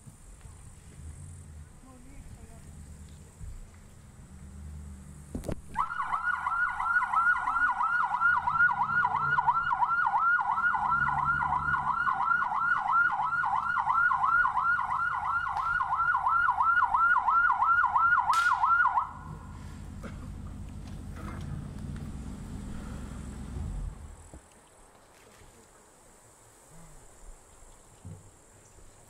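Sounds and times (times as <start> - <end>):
police siren yelping: 5.7 - 19.5
sharp click: 18.3 - 18.6.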